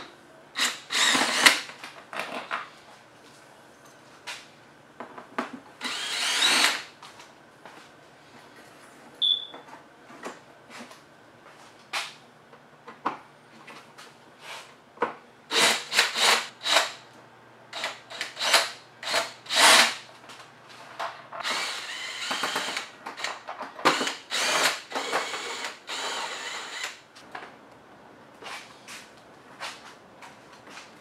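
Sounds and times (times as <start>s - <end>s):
cordless drill running: 0.6s - 1.6s, 5.8s - 6.9s, 15.5s - 17.0s, 17.8s - 20.0s, 21.4s - 23.3s, 23.9s - 27.0s.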